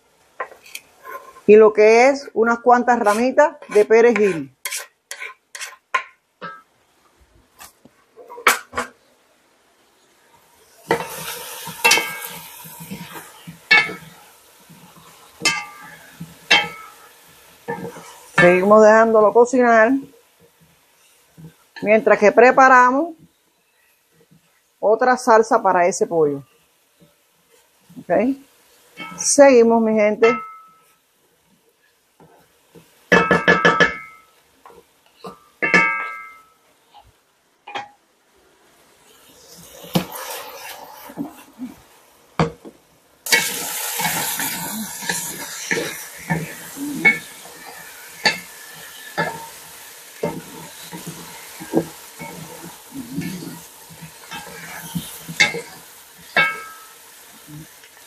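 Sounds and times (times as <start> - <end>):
vegetables sizzling in oil: 0.0 - 58.0
wooden spatula knocking metal pot: 3.6 - 6.6, 30.2 - 30.8, 33.1 - 34.2.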